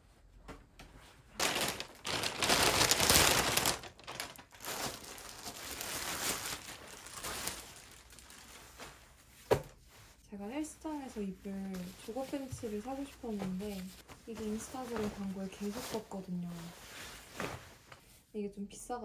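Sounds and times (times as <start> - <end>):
plastic bag crinkling: 1.4 - 9.0.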